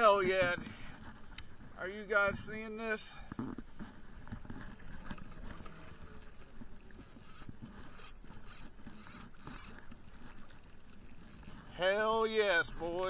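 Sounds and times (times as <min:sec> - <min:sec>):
fishing reel ratchet ticking: 0:04.7 - 0:13.0.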